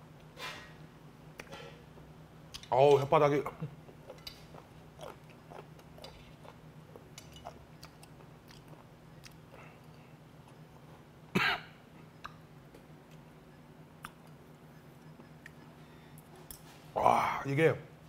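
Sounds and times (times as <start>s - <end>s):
man chewing food: 3.8s - 11.3s, 11.9s - 16.9s
man coughing: 11.3s - 11.8s.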